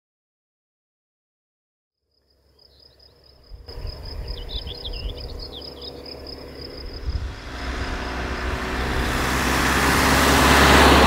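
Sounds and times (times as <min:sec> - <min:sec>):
insect trill: 0:02.0 - 0:11.0
bird chirps: 0:02.5 - 0:09.3
vehicle rumble approaching: 0:03.5 - 0:11.0.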